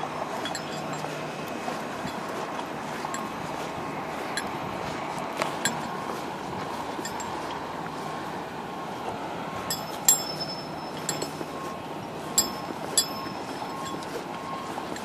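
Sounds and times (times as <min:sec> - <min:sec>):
metallic clinks: 0:00.0 - 0:03.4, 0:04.3 - 0:04.6, 0:05.6 - 0:06.1, 0:06.9 - 0:07.7, 0:09.6 - 0:15.0.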